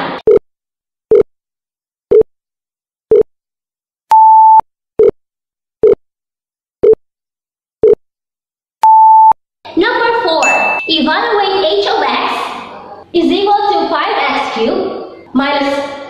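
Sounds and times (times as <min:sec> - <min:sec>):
longer higher beep: 0:10.4 - 0:11.0.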